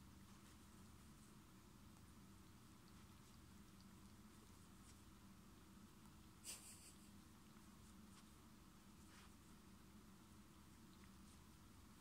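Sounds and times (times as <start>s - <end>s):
low room hum: 0.0s - 12.0s.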